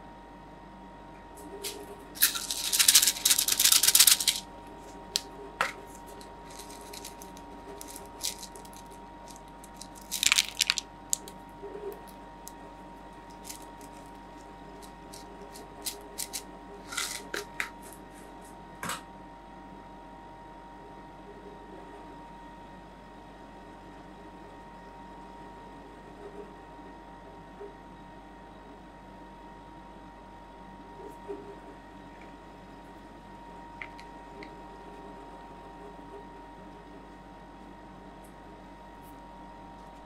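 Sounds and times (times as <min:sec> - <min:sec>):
sugar sprinkles rattling: 0:01.6 - 0:12.6, 0:13.3 - 0:17.6.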